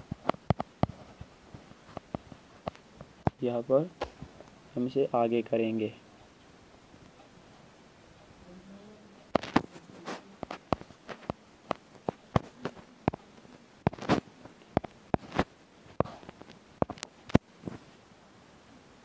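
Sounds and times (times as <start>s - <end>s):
fingertips tapping on touchscreen: 0.0s - 3.4s, 9.3s - 17.4s.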